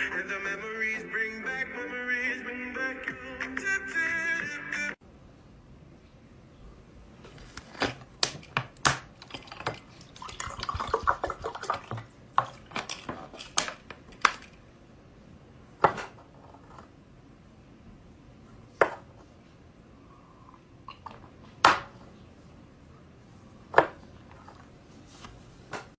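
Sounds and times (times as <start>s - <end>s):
water pouring into glass: 9.3s - 12.6s.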